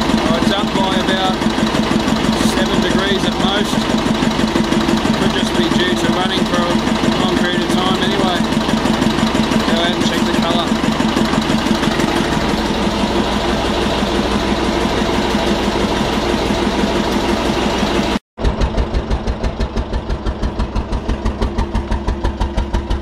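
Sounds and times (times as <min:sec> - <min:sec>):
diesel engine running: 0:00.0 - 0:23.0
exhaust puffs: 0:00.0 - 0:23.0.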